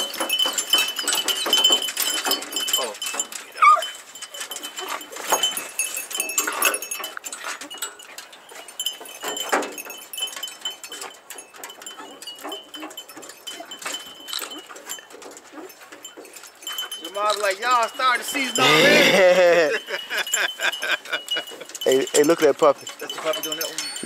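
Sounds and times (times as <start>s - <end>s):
light metallic jingling: 0.0s - 24.0s
dogs whining and yelping: 3.4s - 5.4s.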